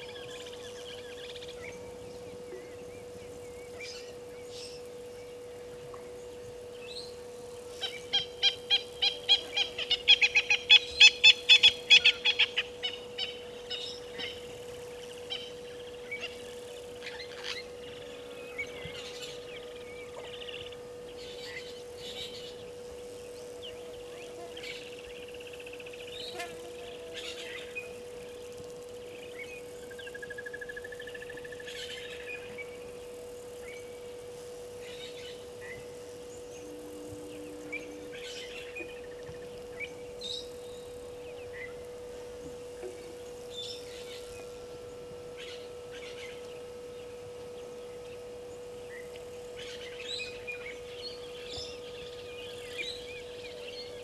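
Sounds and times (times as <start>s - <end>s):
bird trill: 0.0s - 5.4s, 6.7s - 54.0s
steady hum: 0.0s - 54.0s
bird calling rapidly: 7.7s - 14.4s.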